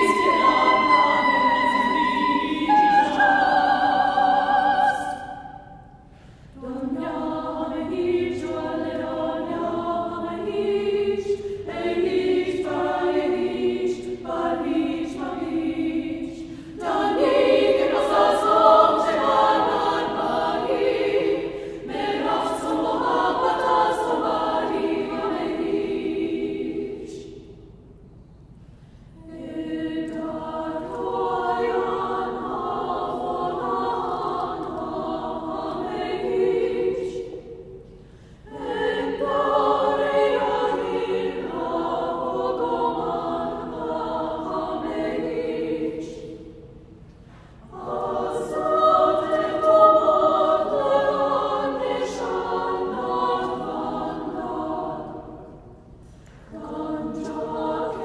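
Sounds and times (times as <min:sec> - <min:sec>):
choir singing: 0:00.0 - 0:28.1, 0:29.1 - 0:58.0.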